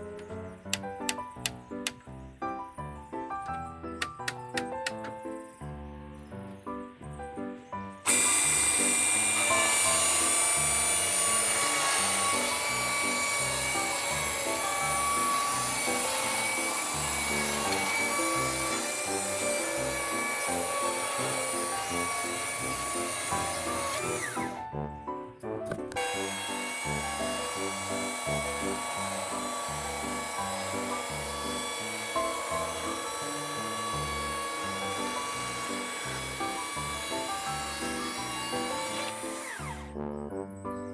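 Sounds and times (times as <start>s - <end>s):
background music: 0.0s - 40.9s
chainsaw cutting log: 8.0s - 24.7s, 25.9s - 40.0s.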